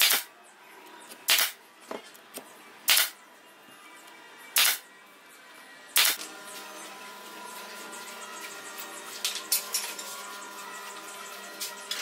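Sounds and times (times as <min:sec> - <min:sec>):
nail gun firing into wood: 0:00.0 - 0:00.3, 0:01.3 - 0:01.6, 0:02.9 - 0:03.2, 0:04.6 - 0:04.8, 0:06.0 - 0:06.2
light background music: 0:00.0 - 0:12.0.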